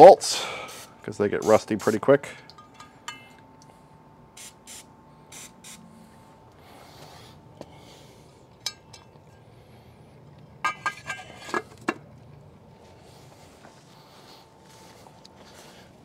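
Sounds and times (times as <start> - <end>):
aerosol spray hissing: 4.4 - 5.8.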